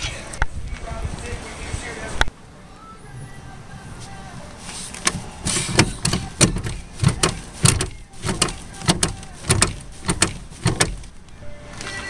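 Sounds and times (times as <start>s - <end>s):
brake pedal clacks and thuds: 4.9s - 11.2s.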